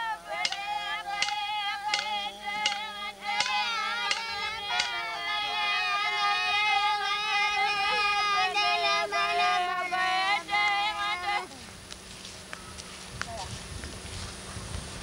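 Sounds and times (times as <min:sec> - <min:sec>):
singing on long held notes: 0:00.0 - 0:11.8
sharp claps: 0:00.4 - 0:05.1.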